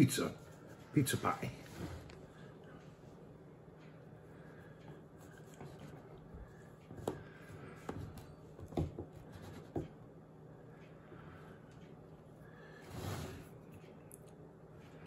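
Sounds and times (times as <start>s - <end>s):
faint scraping: 12.8s - 13.7s.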